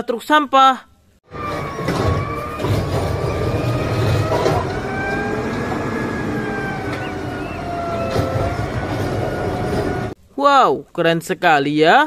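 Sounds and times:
garbage truck engine rumbling: 1.2s - 10.2s
hydraulic arm whine: 1.3s - 10.2s.

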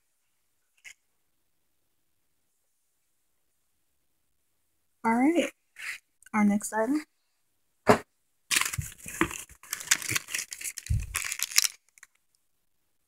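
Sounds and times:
plastic and paper crinkling: 8.5s - 12.3s.

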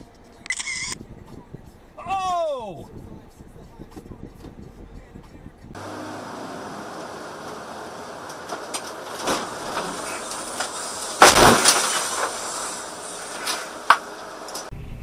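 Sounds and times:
vehicle cabin road noise: 2.9s - 15.0s
vehicle crash: 5.8s - 14.7s
knocks and rattles: 7.0s - 12.6s.

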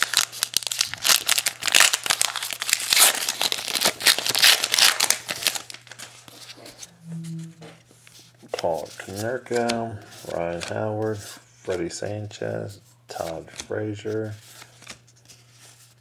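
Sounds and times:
card pack wrapper tearing and crinkling: 0.0s - 6.6s.

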